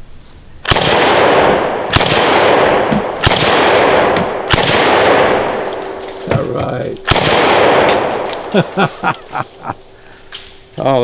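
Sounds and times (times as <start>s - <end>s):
shotgun shots with echo: 0.6s - 8.8s.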